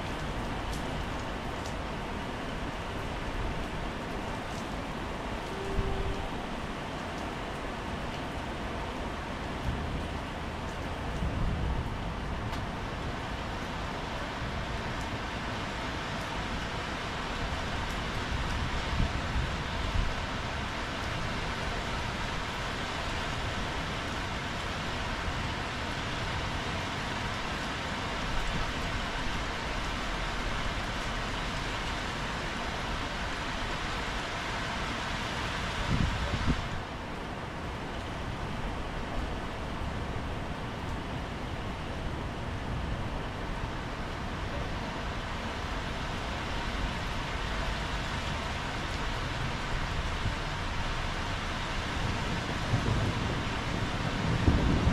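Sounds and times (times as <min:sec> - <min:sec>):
rain on wet paving: 0:00.0 - 0:54.9.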